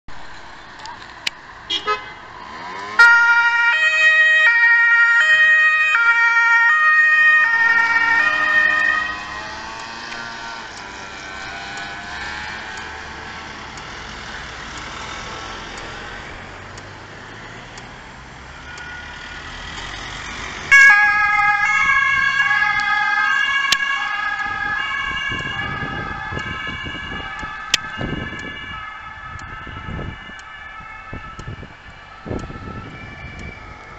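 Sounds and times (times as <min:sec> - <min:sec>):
police car two-tone siren: 0:02.8 - 0:13.8, 0:18.5 - 0:33.9
two-tone emergency siren: 0:02.8 - 0:16.6, 0:18.4 - 0:33.9.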